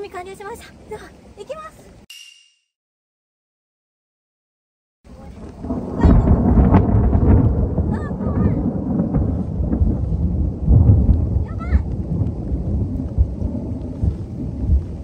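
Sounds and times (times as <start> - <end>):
thunder rumbling: 5.1 - 15.0.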